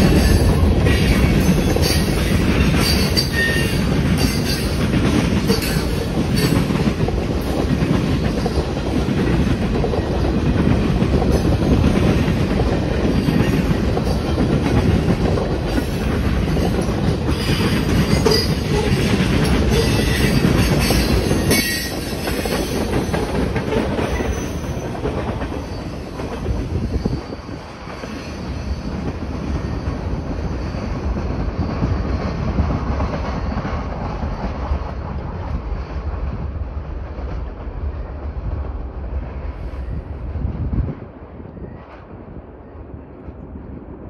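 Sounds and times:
freight train rolling on rails: 0:00.0 - 0:44.0
wheel squeal: 0:26.8 - 0:32.4.

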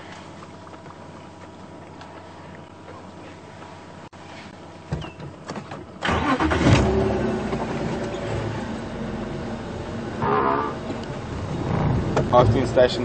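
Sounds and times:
vehicle engine starting and running: 0:05.4 - 0:13.0.

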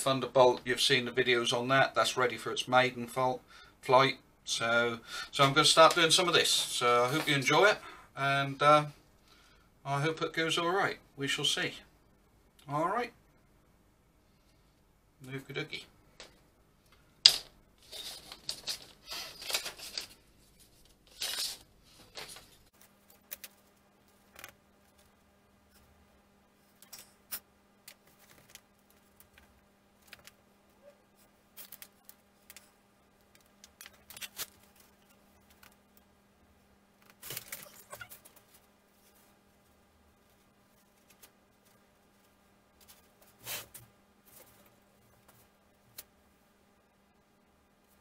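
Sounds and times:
faint steady hum: 0:00.0 - 0:48.0
paper rustling: 0:17.8 - 0:25.1, 0:37.0 - 0:39.3.

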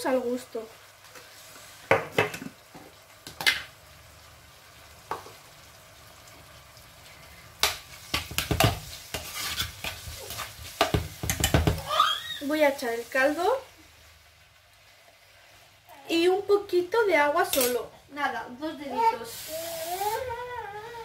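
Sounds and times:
vegetables sizzling in oil: 0:00.0 - 0:21.0
metal spoon scraping pot: 0:08.6 - 0:10.5
spoon knocking against pot: 0:10.8 - 0:11.9.

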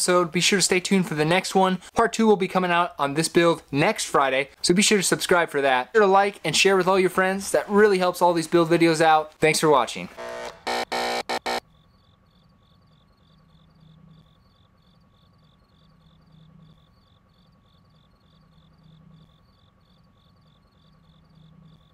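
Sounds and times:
cricket chirps: 0:11.6 - 0:21.9.

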